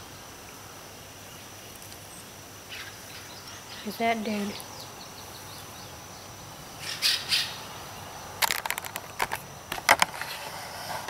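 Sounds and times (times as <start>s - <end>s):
faint high hiss: 0.0s - 11.0s
crunches and snaps: 8.4s - 10.4s.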